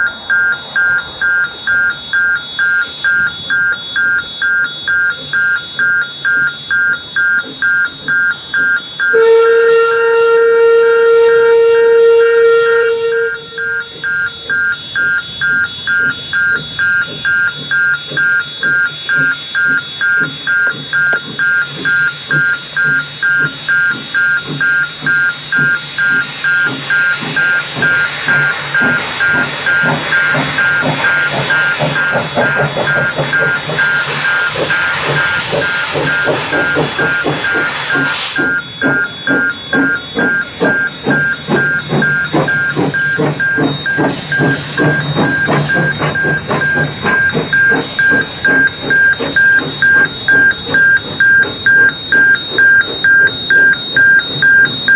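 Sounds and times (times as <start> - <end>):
level crossing alarm beeping: 0.0 - 54.9
steam locomotive hissing: 0.0 - 54.9.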